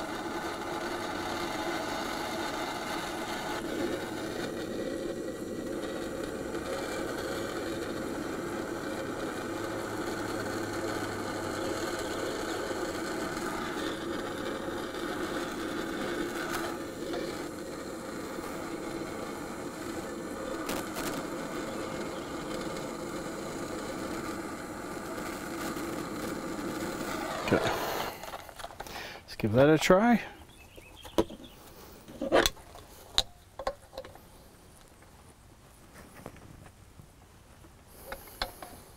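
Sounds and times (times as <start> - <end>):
gas torch hissing: 0.0 - 29.4, 37.9 - 38.9.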